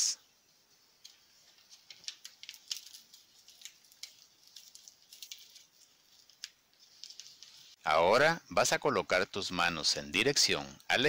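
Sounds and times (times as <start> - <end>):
paper crackling being folded: 0.8 - 7.8.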